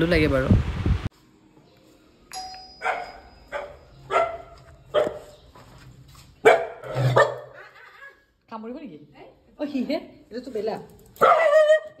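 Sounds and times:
dog barking: 2.8 - 5.4, 6.4 - 7.6, 11.2 - 12.0.

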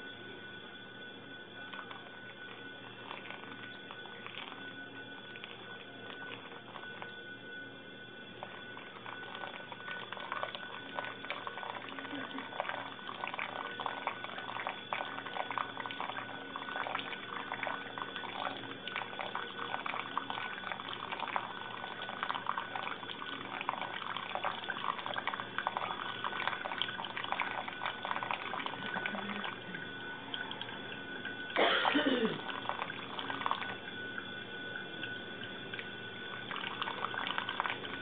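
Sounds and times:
water pouring onto coffee grounds: 1.7 - 7.2, 8.4 - 31.6, 32.3 - 38.0.

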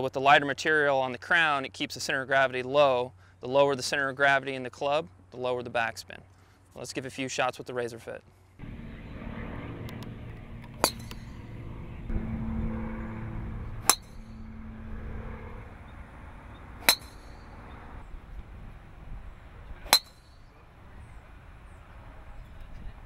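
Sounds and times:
low background hum: 8.2 - 23.0
golf driver striking ball: 13.8 - 14.5, 16.8 - 17.5.

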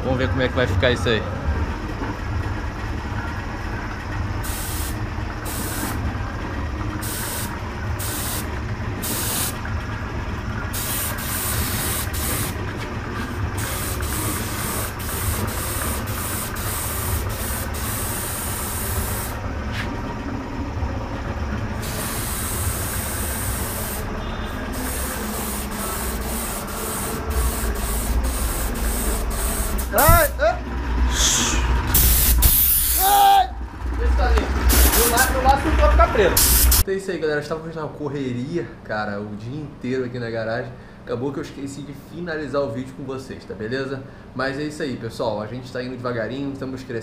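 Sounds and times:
steady low hum: 0.0 - 36.9
paint spray gun hissing: 4.4 - 6.0, 7.0 - 9.6, 10.6 - 19.4, 21.8 - 30.3, 31.2 - 33.2, 34.7 - 35.4, 36.3 - 36.8.

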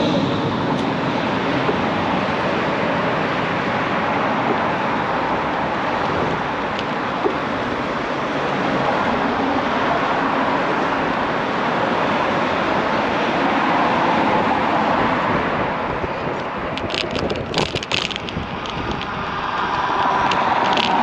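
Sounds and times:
street traffic: 0.0 - 21.0
wind on microphone: 0.0 - 21.0
sharp clicks and rattles: 16.4 - 21.0.

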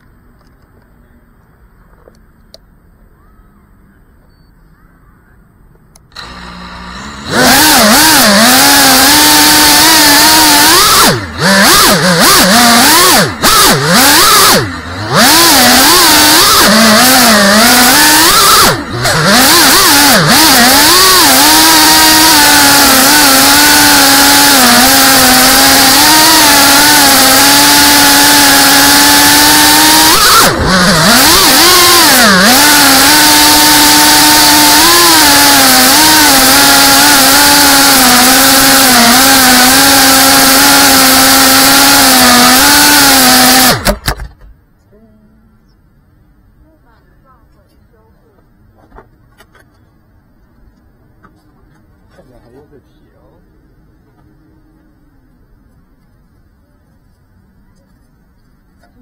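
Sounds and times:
quadcopter motors whining: 6.0 - 44.4.

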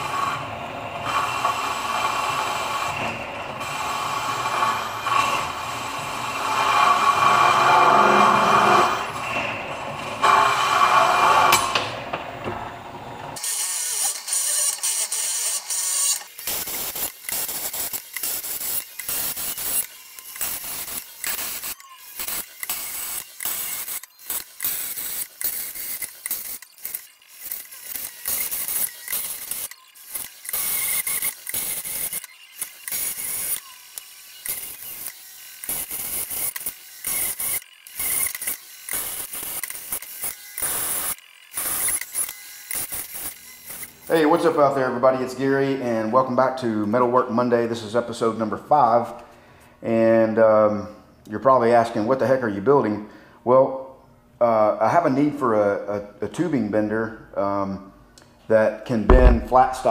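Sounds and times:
drill cutting through steel: 0.0 - 11.8, 13.4 - 44.5, 59.1 - 59.9
metal chips clicking and crunching: 14.1 - 44.0.

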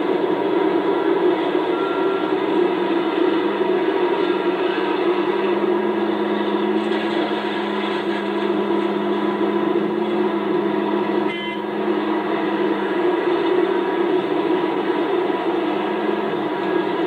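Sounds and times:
excavator diesel engine under load: 0.0 - 17.0
brief high tone: 1.7 - 2.4, 11.3 - 11.8.

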